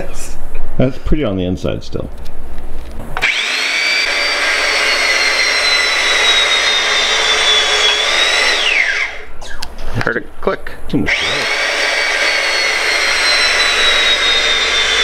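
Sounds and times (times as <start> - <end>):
hydraulic crimping tool motor whining: 3.2 - 9.3, 11.1 - 15.0.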